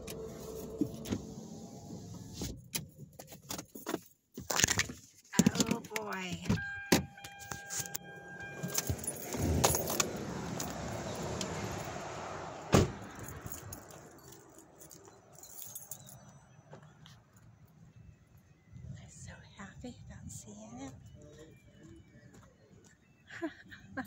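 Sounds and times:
car door shutting: 0.0 - 2.9, 6.6 - 11.8, 12.6 - 13.3
handling and rustling: 3.0 - 6.4
car warning chime: 6.4 - 11.5
keys jangling: 7.2 - 12.0, 13.0 - 16.3.

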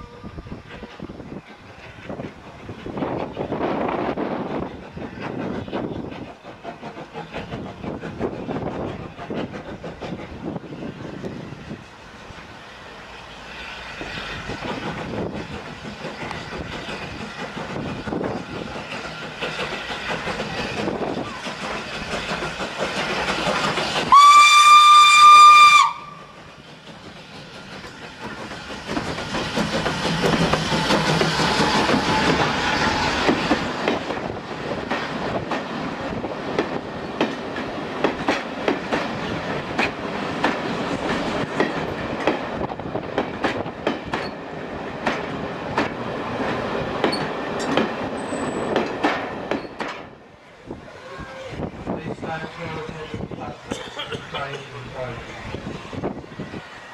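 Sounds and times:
steam locomotive whistle: 0.0 - 0.6, 24.0 - 26.4
locomotive engine passing: 0.0 - 49.5
train wheels clicking over rail joints: 0.2 - 50.8.

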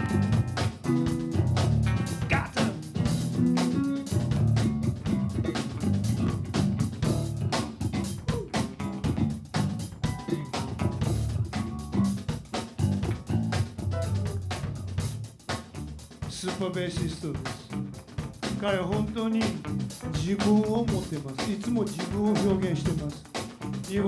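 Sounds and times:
electric guitar: 0.0 - 15.0
drum kit kick and snare: 0.0 - 24.0
electric bass line: 0.0 - 24.0.

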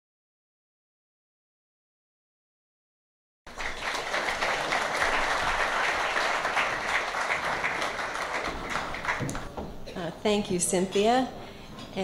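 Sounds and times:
audience applauding: 3.5 - 9.5.

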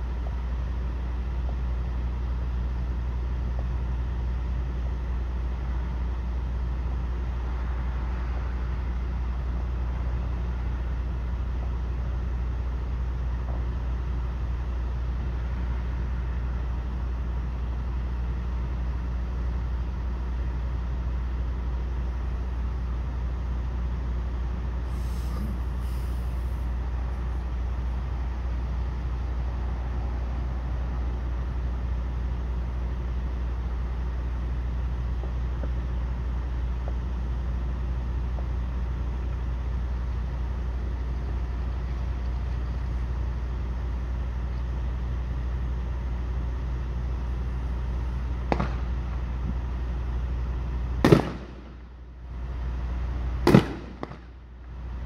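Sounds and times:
diesel truck engine idling: 0.0 - 55.0
air brake hissing: 24.8 - 26.8.

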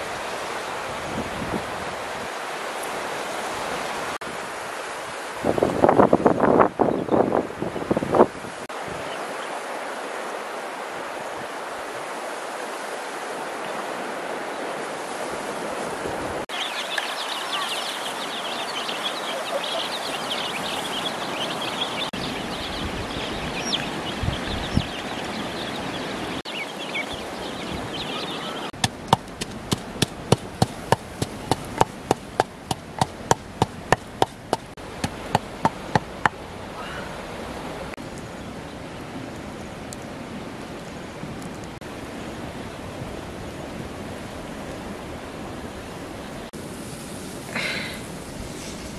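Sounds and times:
chicks and ducklings peeping: 16.6 - 28.8
sharp evenly spaced knocks: 28.8 - 36.4
outdoor hiss: 46.5 - 48.9.

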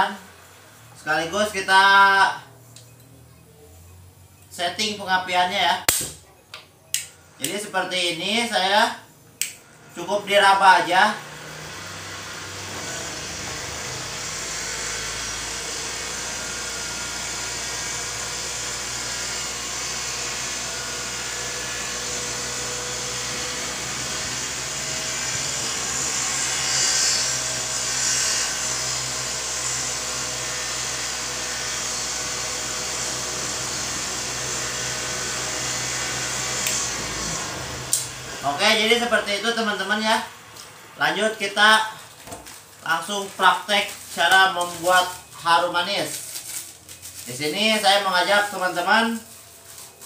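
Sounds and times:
motor whirring and humming: 10.9 - 39.2.

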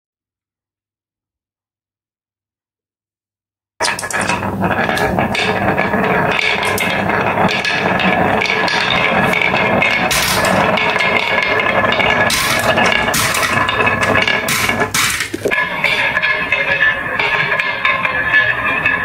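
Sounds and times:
marbles clacking against wood: 3.8 - 18.0
marbles rolling on wooden track: 3.8 - 19.0.

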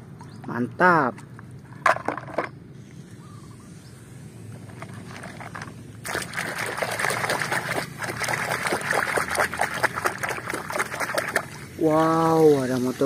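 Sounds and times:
hand scrubbing toy underwater: 4.8 - 11.8
muddy water sloshing and splashing: 5.0 - 11.8.

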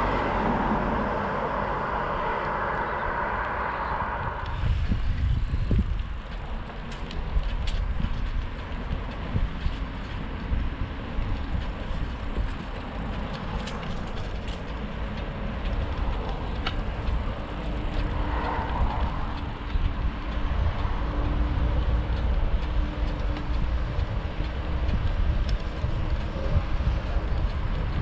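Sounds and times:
tyres rolling on pavement: 0.0 - 28.0
wind rumbling on microphone: 0.0 - 28.0
light ticks: 11.2 - 28.0.

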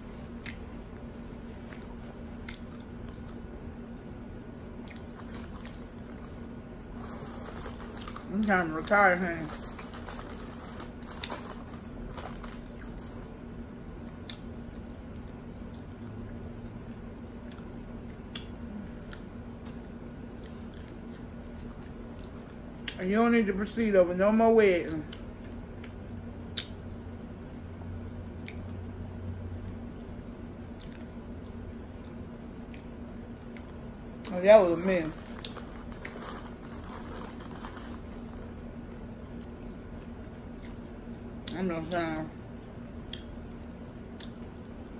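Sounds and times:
person chewing food: 0.0 - 3.5, 4.8 - 8.3, 9.4 - 13.3, 30.8 - 39.6, 40.5 - 40.8
steady low hum: 0.0 - 44.9.

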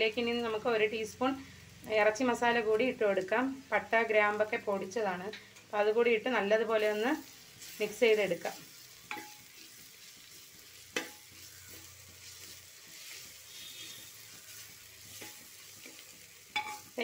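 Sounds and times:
onions sizzling in oil: 0.0 - 17.0
spoon knocking on pot: 16.6 - 16.8.

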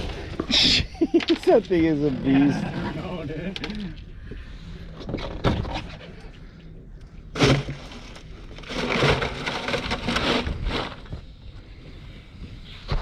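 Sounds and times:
ice crunching: 7.4 - 11.1.

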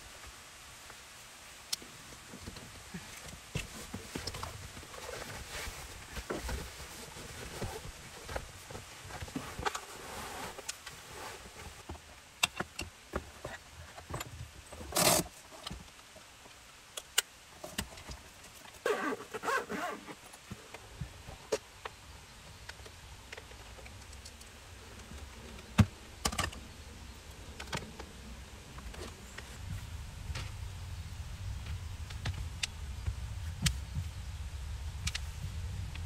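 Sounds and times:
gear rustling: 2.9 - 11.9, 17.6 - 20.5.

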